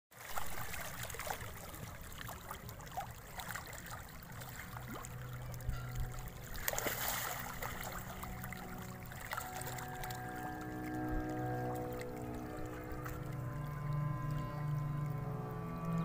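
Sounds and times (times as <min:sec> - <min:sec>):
fish splashing in water: 0:00.2 - 0:05.3, 0:06.5 - 0:09.9.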